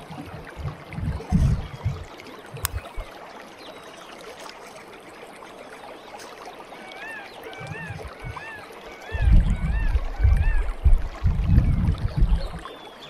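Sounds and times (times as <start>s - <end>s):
running water rushing: 0.0s - 13.0s
soft low thuds: 0.3s - 3.1s, 9.2s - 12.6s.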